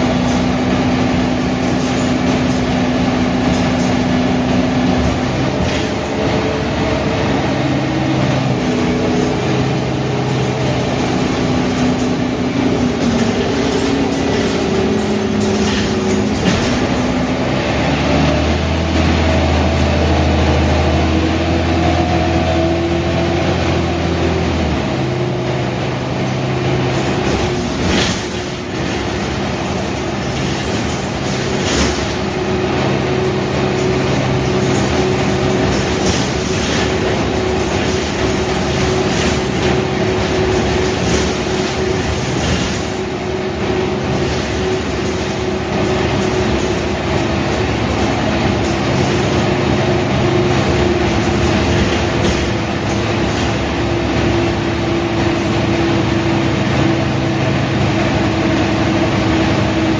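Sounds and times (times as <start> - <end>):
sharp knocks and rattles: 0.0 - 6.5, 8.5 - 17.5, 26.9 - 55.6
bus diesel engine running: 0.0 - 59.9.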